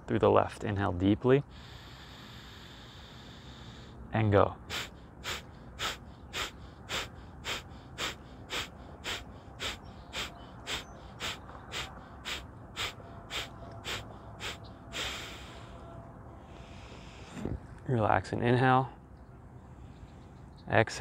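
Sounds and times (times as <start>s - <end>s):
forceful nasal exhalations: 1.5s - 4.0s, 4.6s - 15.8s.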